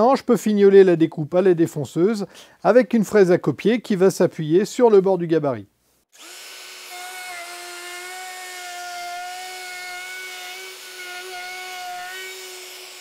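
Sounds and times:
electric router whining: 6.2 - 13.0.

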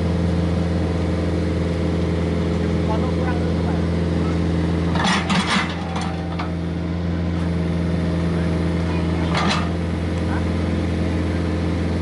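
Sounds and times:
excavator diesel engine running: 0.0 - 12.0
bucket scraping rattle: 4.9 - 6.6.

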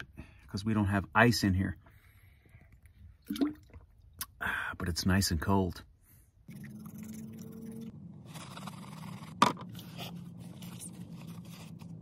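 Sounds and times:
paper rustling: 9.7 - 12.0.

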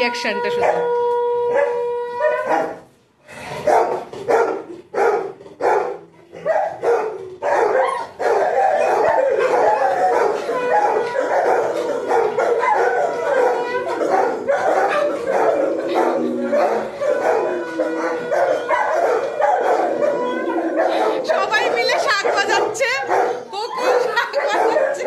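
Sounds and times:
conch shell blowing: 0.0 - 2.5, 16.2 - 20.8
dogs barking and howling: 0.0 - 3.0, 3.6 - 25.0.

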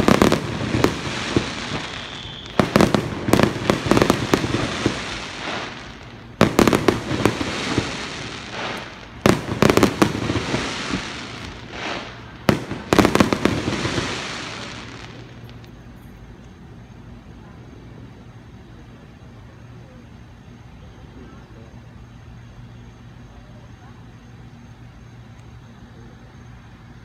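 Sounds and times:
fireworks bursting with sharp bangs: 0.0 - 15.9.

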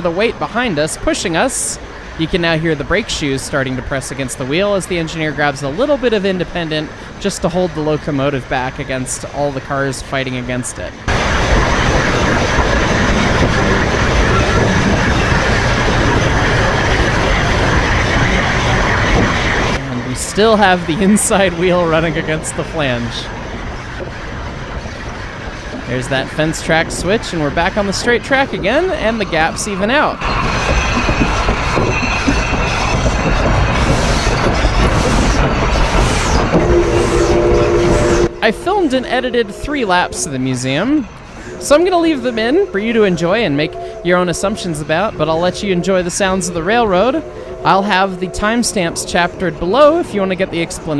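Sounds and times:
train wheels rumbling on rail: 0.0 - 50.9
steady tone: 11.0 - 50.9.

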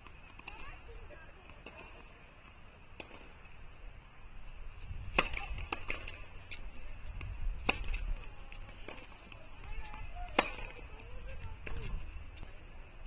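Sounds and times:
tennis ball bouncing: 5.0 - 6.6, 7.2 - 12.0
racquets striking tennis ball: 5.0 - 12.0.

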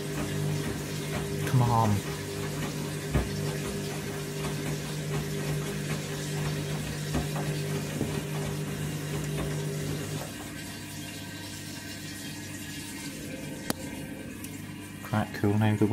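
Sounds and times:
washing machine low hum: 0.0 - 15.9
water sloshing in washing machine: 0.0 - 15.9
drum thump: 2.5 - 8.7.

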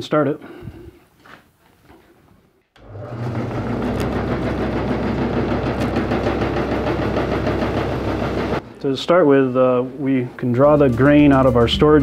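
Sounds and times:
grain cleaner machine running: 2.8 - 8.6.

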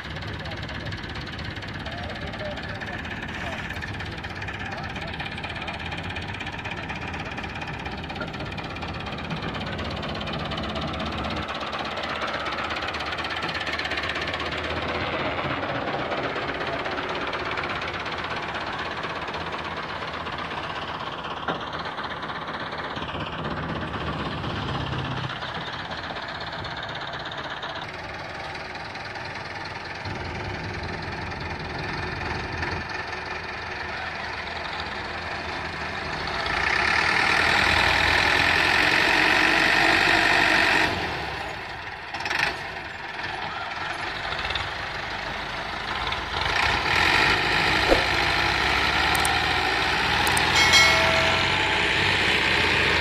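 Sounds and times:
tractor diesel engines under heavy load: 0.0 - 53.0.

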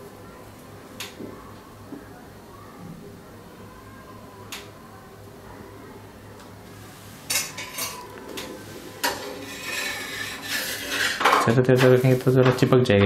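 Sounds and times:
steel spatula scraping a pan: 8.6 - 12.2.

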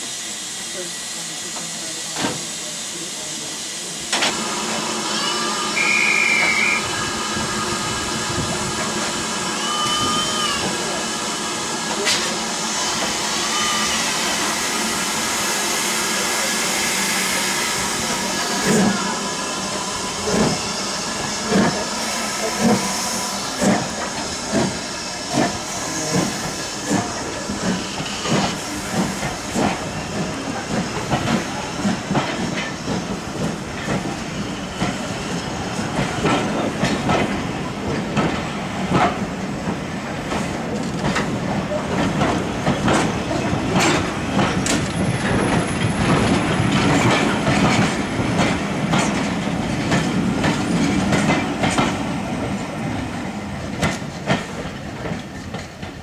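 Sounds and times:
steam locomotive beats: 0.0 - 56.0
train wheels clicking over rail joints: 4.1 - 4.4, 20.1 - 56.0.

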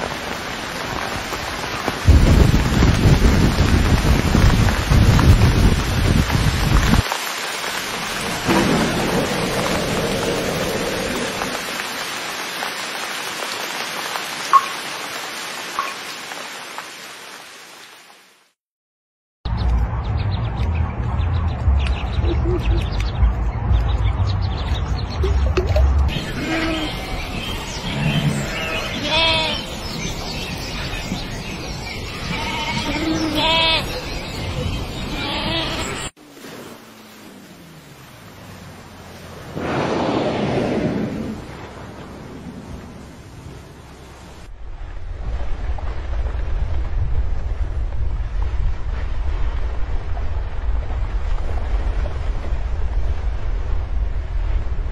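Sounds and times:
thunder rumble: 0.0 - 7.1, 7.7 - 12.0, 37.1 - 54.9
steady rain: 0.0 - 18.6, 25.0 - 54.9
sheep bleating: 32.2 - 33.9.

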